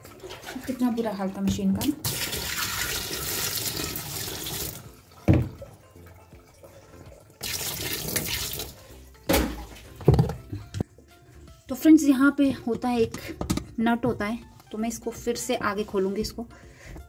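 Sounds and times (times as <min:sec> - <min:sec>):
water splashing onto plastic plate: 0:00.0 - 0:05.6, 0:07.4 - 0:10.4.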